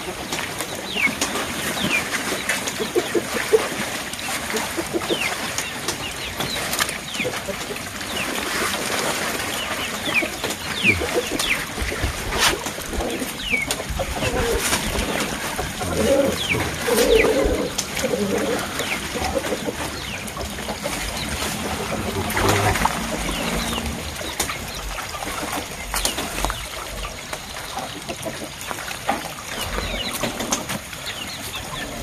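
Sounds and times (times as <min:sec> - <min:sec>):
water splashing and dripping: 0:00.0 - 0:32.0
birds chirping: 0:09.3 - 0:28.8
low cooing calls: 0:10.2 - 0:26.8.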